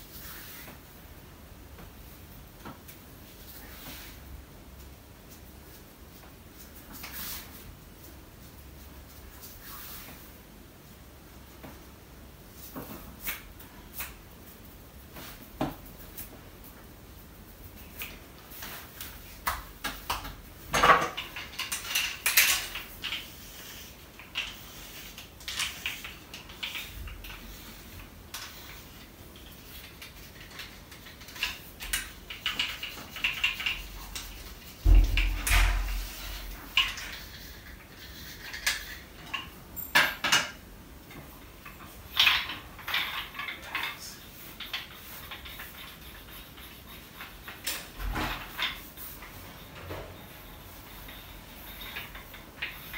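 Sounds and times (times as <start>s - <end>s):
thump: 34.8s - 36.1s.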